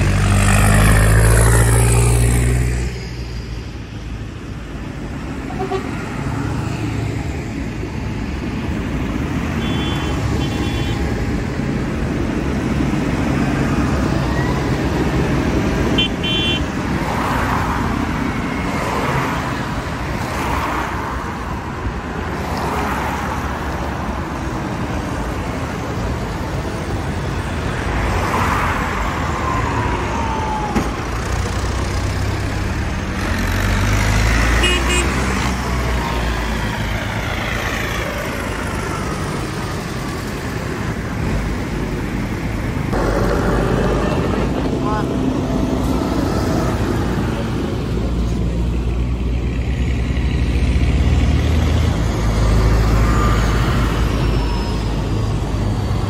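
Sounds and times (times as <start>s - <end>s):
tractor diesel engines passing: 0.0s - 56.0s
high horn toots: 5.4s - 6.0s, 9.6s - 11.0s, 16.0s - 16.7s, 34.6s - 35.2s
car passing: 42.8s - 48.9s.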